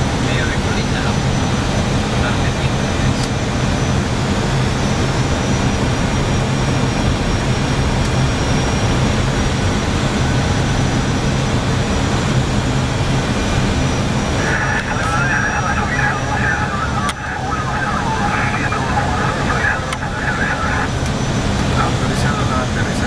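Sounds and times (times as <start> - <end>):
low hum: 13.1 - 22.2.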